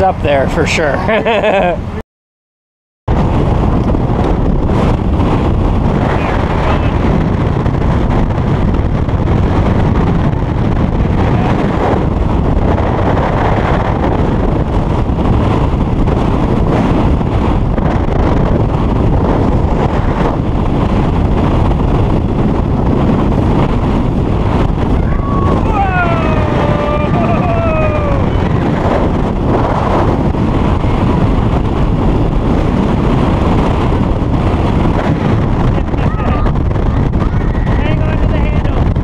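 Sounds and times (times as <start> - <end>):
wind buffeting microphone: 0.0 - 2.0, 3.1 - 39.0.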